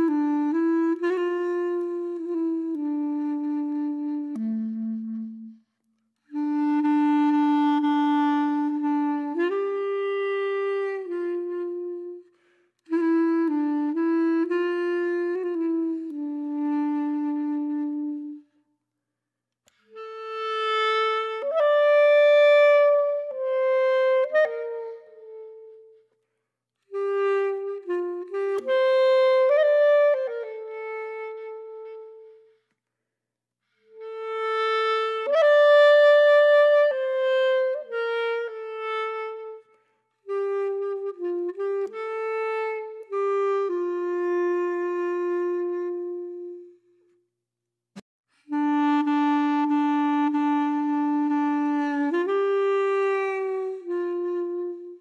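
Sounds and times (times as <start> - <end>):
slow solo melody: 0.0 - 5.7, 26.9 - 32.5, 48.5 - 55.0.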